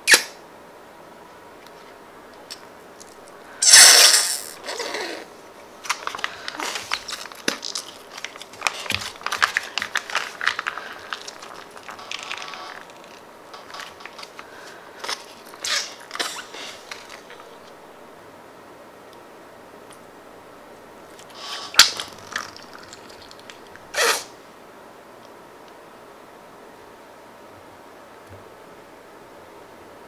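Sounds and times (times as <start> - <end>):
plastic pouch crinkling: 3.0 - 17.7, 21.2 - 24.2.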